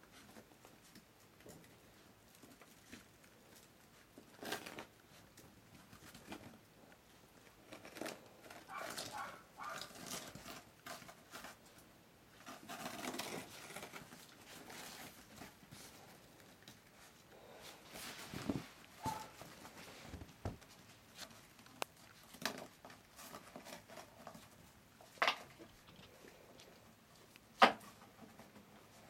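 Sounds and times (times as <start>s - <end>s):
puppies chewing bristles: 0.0s - 29.0s
paw patter: 7.6s - 11.8s, 17.9s - 29.0s
puppies scrabbling on wooden deck: 7.8s - 11.7s.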